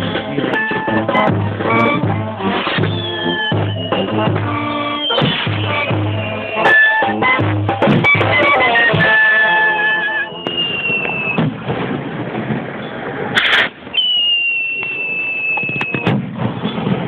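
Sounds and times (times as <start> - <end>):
music: 0.0 - 11.4
skyrocket whistle: 2.6 - 7.4, 8.0 - 11.4, 13.9 - 16.1
skyrocket bang: 13.3 - 13.8.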